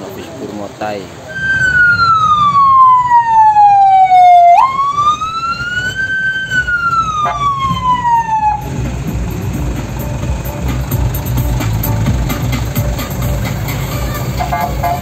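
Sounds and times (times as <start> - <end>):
crowd noise: 0.0 - 4.4
engines rumbling: 0.0 - 15.0
loud siren: 1.3 - 8.8.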